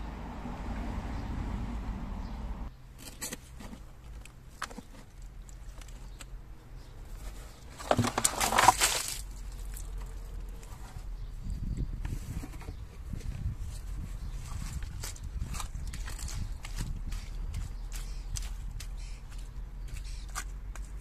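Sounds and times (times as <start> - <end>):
scraps rustling and clattering: 7.0 - 11.1.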